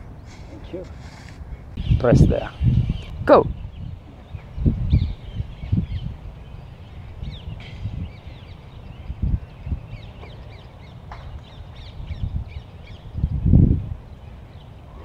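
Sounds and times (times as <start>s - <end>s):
wind rumbling on microphone: 0.0s - 15.0s
bird chirps and calls: 0.1s - 15.0s.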